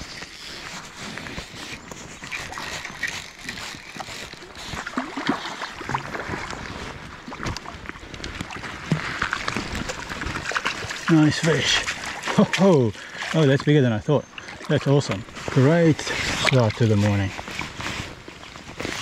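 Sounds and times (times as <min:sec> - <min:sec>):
fish thrashing and splashing: 0:00.0 - 0:19.0
wading boots splashing: 0:00.7 - 0:19.0
stream water rushing: 0:04.6 - 0:17.7.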